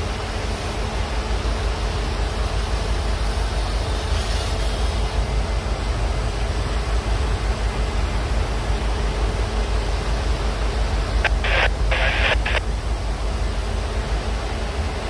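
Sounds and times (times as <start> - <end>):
freight train rumbling past: 0.0 - 15.0.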